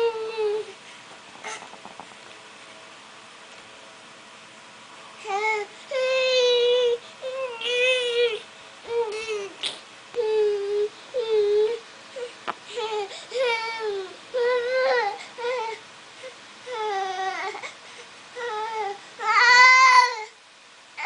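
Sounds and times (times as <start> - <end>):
toddler whining and crying: 10.2 - 15.8, 16.7 - 17.7, 18.4 - 20.4.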